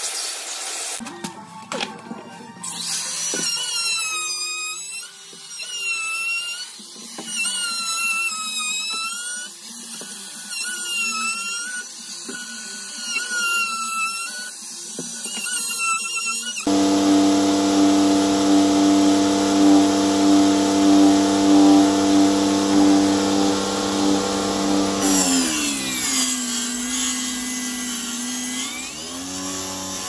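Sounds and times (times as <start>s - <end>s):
router cutting wood: 7.1s - 30.0s.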